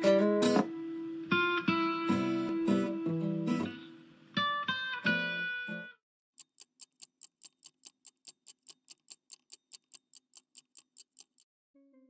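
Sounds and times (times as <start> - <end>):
mechanical watch ticking: 6.4 - 11.5.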